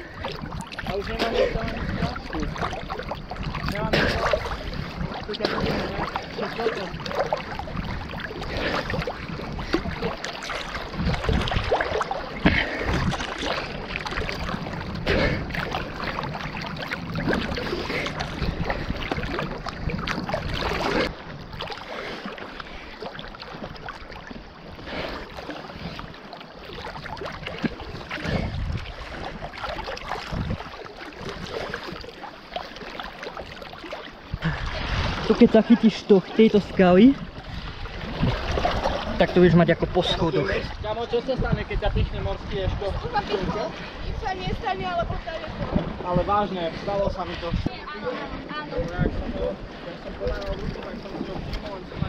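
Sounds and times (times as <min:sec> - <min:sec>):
swimming stroke splashes: 0:00.0 - 0:40.5
water splashing and sloshing: 0:00.0 - 0:52.0.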